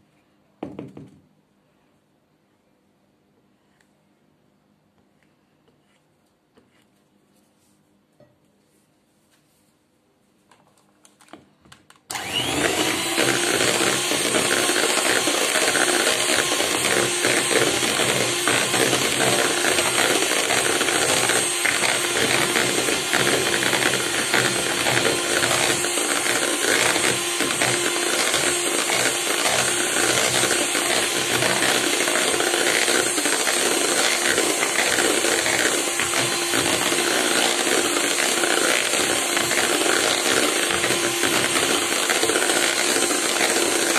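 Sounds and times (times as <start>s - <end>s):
beaters whipping cream: 12.1s - 43.9s
electric hand mixer whine: 12.1s - 43.9s.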